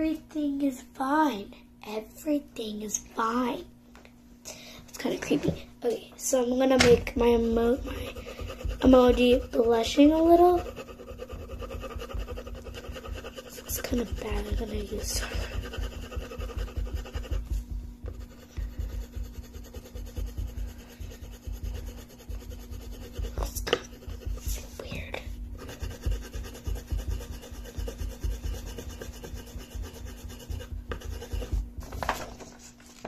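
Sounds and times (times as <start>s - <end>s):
coloring tool rubbing on paper: 7.6s - 24.8s, 25.5s - 32.0s.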